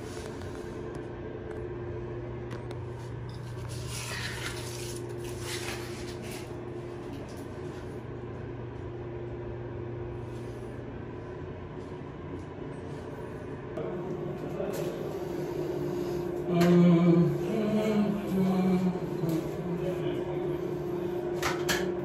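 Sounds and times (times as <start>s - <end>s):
steady low hum: 0.0s - 22.0s
wallpaper scraping and rustling: 3.4s - 7.9s.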